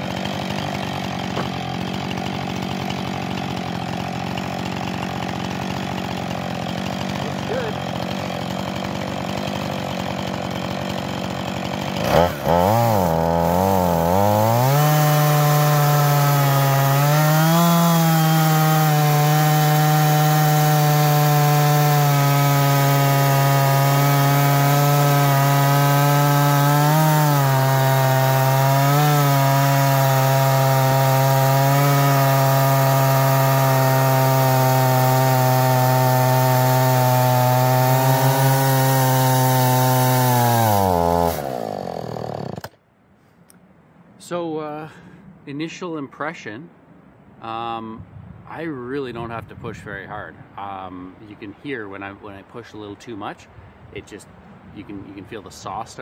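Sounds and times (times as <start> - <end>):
chainsaw cutting log: 0.0 - 42.8
chainsaw knock: 0.0 - 42.8.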